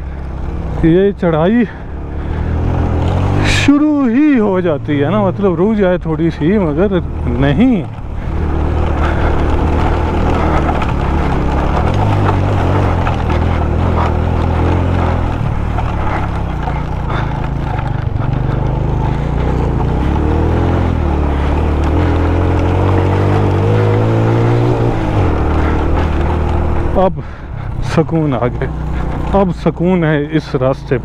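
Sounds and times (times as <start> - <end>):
motorcycle engine under load: 0.0 - 31.0
knocks and rattles over stones: 6.9 - 27.2.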